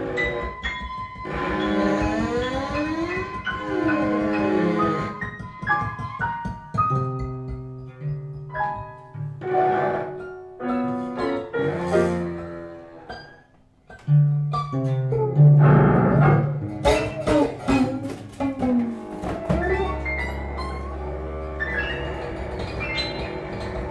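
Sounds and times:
plucked notes: 0:00.0 - 0:23.9
keyboard notes: 0:14.0 - 0:23.9
sustained low string notes: 0:15.4 - 0:22.8.

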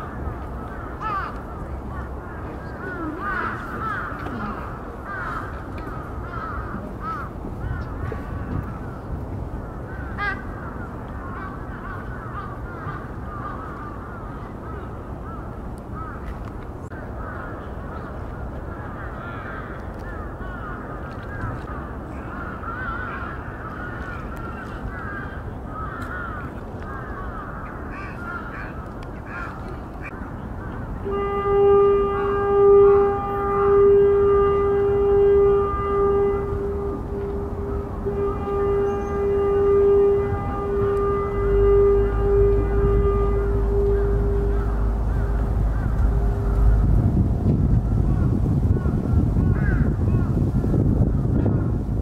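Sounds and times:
birds chirping: 0:00.0 - 0:50.4
low outdoor hum: 0:00.0 - 0:52.0
horn-like steady tone: 0:31.0 - 0:49.3.

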